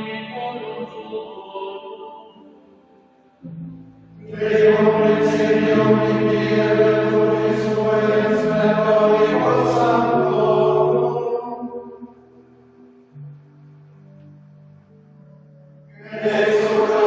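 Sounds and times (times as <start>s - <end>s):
held low organ notes: 2.4s - 17.0s
male choir singing plainchant: 4.2s - 12.1s, 15.9s - 17.0s.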